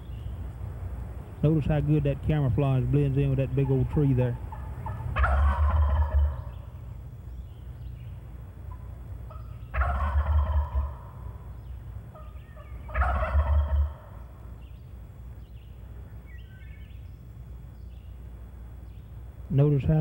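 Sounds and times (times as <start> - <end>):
turkey gobbling: 3.5 - 6.7, 8.7 - 11.5, 12.1 - 14.4.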